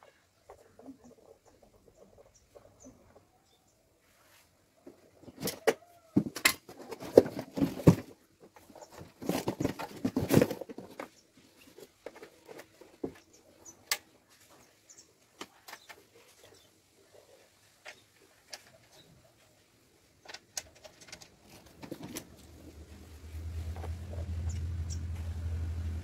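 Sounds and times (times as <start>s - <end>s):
knocks and scrapes on concrete: 4.4s - 13.5s
cardboard box rustling: 8.9s - 11.2s.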